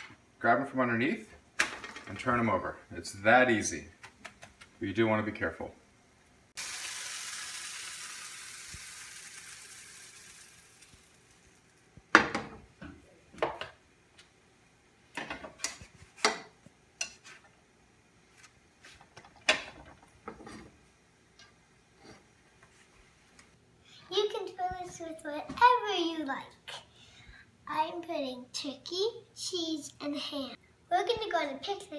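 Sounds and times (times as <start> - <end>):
frying pan sizzling: 6.5 - 12.4.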